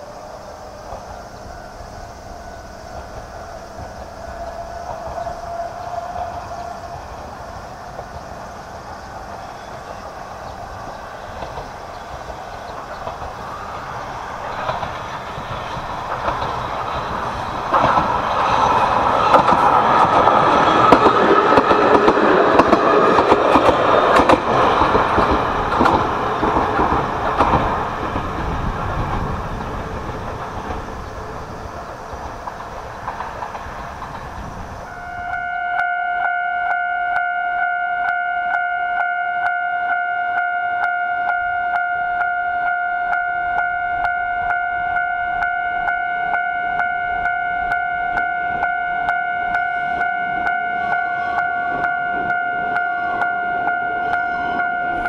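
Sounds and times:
electric railcar passing: 0.0 - 55.0
wheels clattering over rail joints: 2.9 - 34.9.

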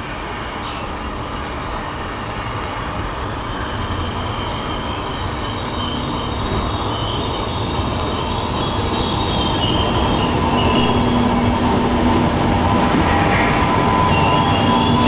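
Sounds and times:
electric train rumbling: 0.0 - 15.0
wheels squealing on curve: 3.2 - 15.0.

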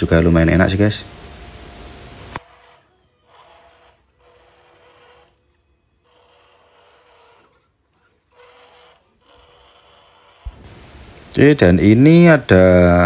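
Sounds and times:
toy truck motor whirring: 2.3 - 10.6.

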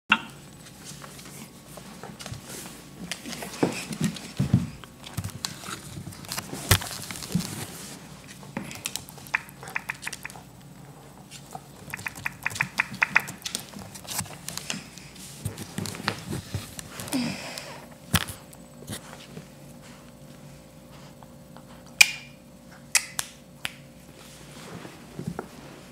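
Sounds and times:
animals scuffling on floor: 0.6 - 9.5, 11.0 - 17.2, 24.0 - 25.9
quick run of clicks: 9.3 - 10.4, 11.9 - 13.6.

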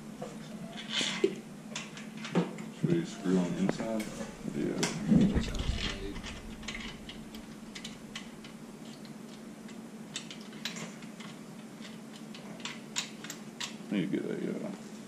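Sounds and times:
light clicks and taps of parts: 6.5 - 13.8.

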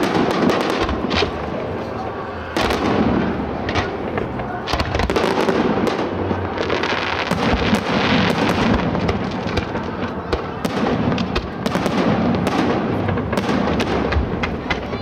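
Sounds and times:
continuous rumbling: 0.0 - 15.0
fireworks bangs and crackling: 0.0 - 15.0.

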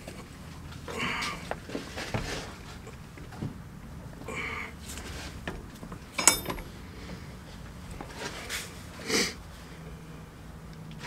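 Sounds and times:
metal parts handling noises: 5.5 - 6.8
metallic clink: 6.2 - 6.8
breathy sniff: 8.5 - 9.4.

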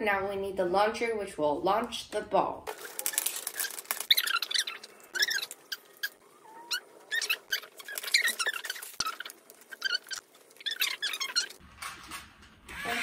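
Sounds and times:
wooden pieces squeaking: 2.7 - 12.2.

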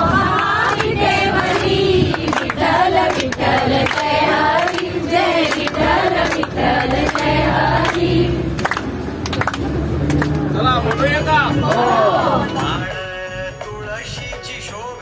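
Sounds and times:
group singing in chorus: 0.0 - 8.8, 11.6 - 12.8
hand claps: 0.3 - 11.9.

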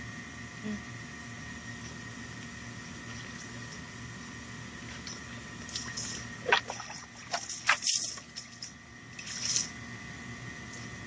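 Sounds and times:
water sloshing in plastic bowl: 5.0 - 8.6
water pouring and splashing: 5.0 - 8.7.

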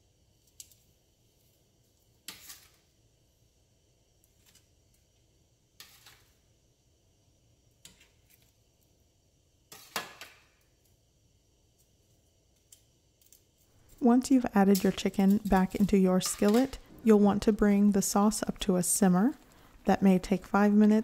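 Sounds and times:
kitchen tongs clicking: 13.9 - 16.8.

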